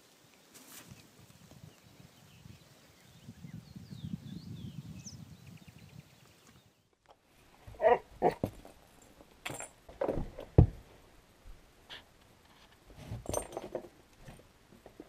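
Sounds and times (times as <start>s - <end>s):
horse hooves on wooden boards: 7.6s - 10.9s, 12.9s - 15.0s.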